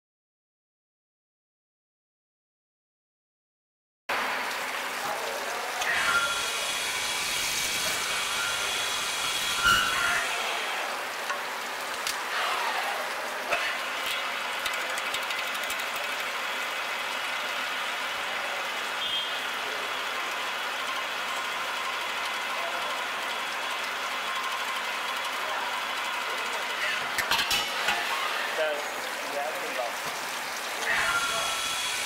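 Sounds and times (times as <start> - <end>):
machine whirring: 5.8 - 12.7, 13.4 - 29.1, 30.2 - 32.0
sharp clicks and knocks: 14.6 - 16.3.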